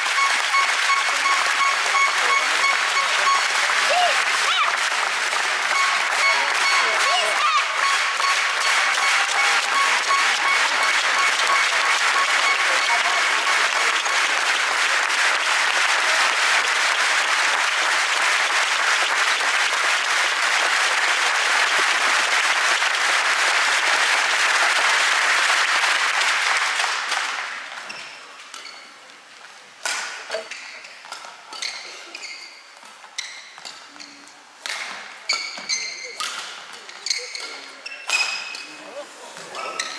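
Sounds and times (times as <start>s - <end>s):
crowd applauding: 0.0s - 27.8s.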